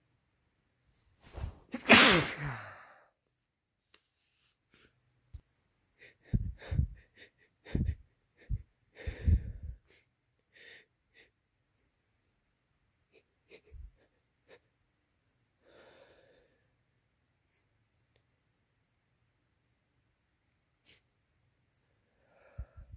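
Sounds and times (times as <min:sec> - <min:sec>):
person gasping breaths: 0:01.3 - 0:03.1, 0:06.0 - 0:10.9, 0:15.6 - 0:16.7, 0:22.2 - 0:22.9.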